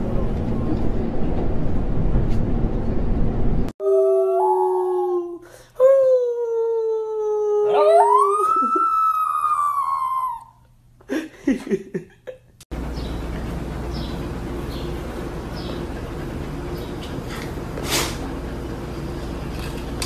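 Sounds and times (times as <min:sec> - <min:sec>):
subway car rumble: 0:00.0 - 0:03.7
small dog howling: 0:07.0 - 0:10.6
dog whining: 0:07.3 - 0:10.6.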